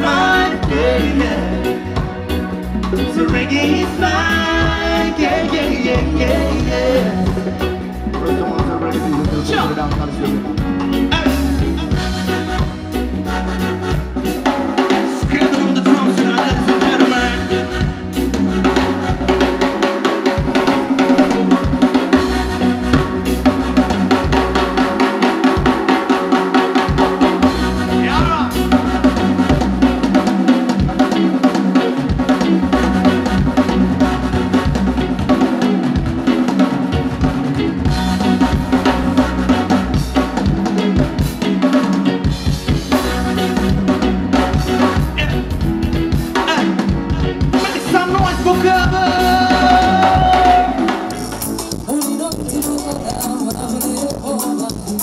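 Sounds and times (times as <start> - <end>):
drum kit and bass beat: 0.0 - 55.0.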